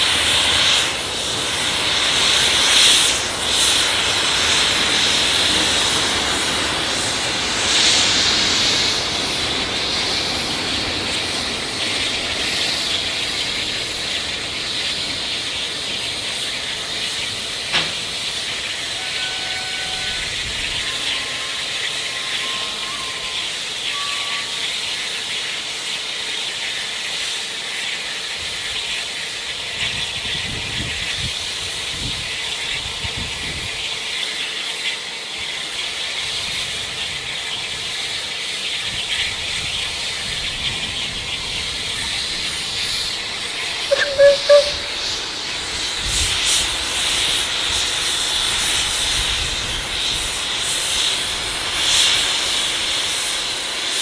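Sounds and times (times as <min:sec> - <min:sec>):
steam locomotive hissing: 0:00.0 - 0:54.0
short whistle toots: 0:43.9 - 0:45.2.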